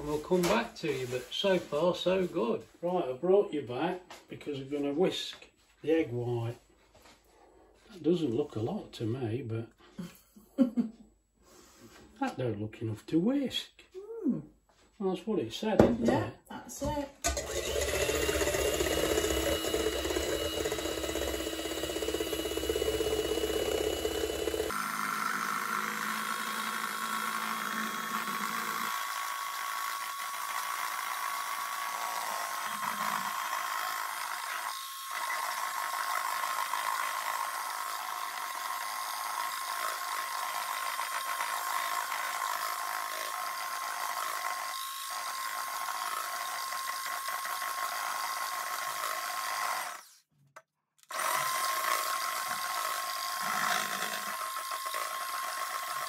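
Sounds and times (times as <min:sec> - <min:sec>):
electric hand mixer whining: 0:17.2 - 0:50.2, 0:51.0 - 0:56.0.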